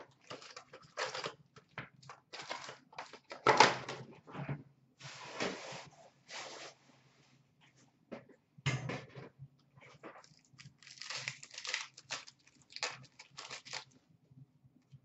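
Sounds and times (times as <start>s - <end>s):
foil wrapper crinkling: 0.0s - 1.4s, 2.0s - 3.5s, 10.1s - 14.0s.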